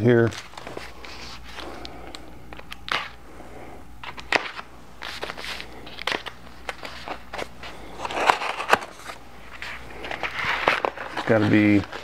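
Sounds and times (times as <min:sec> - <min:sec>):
cardboard crackling and rustling: 0:00.2 - 0:01.8, 0:04.0 - 0:12.0
sharp cardboard cracks: 0:04.1 - 0:09.2.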